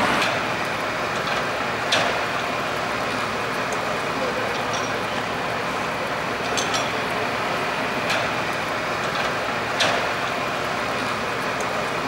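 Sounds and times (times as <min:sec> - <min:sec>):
fire engines running: 0:00.0 - 0:12.0.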